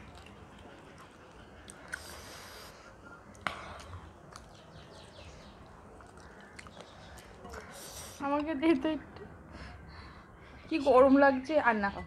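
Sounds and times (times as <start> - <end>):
faint chewing: 0.0 - 8.5.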